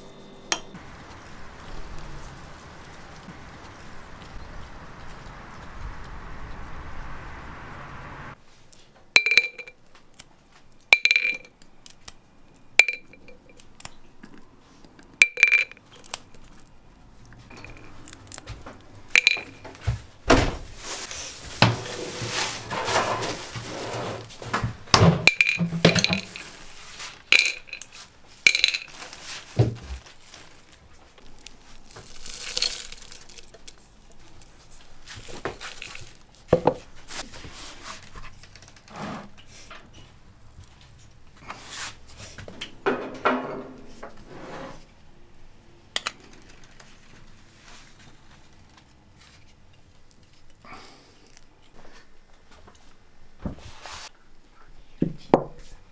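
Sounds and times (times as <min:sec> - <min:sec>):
glass jar and spoon clinking: 0:09.2 - 0:09.7, 0:11.0 - 0:11.5, 0:12.8 - 0:13.6, 0:15.2 - 0:15.8, 0:17.5 - 0:18.0, 0:19.2 - 0:19.6, 0:25.3 - 0:26.6, 0:27.3 - 0:27.9, 0:28.5 - 0:28.9
dry rattling and rustling: 0:21.6 - 0:37.2.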